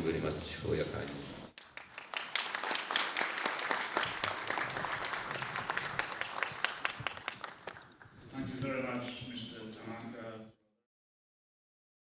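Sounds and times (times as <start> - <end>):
audience applauding: 1.6 - 8.1.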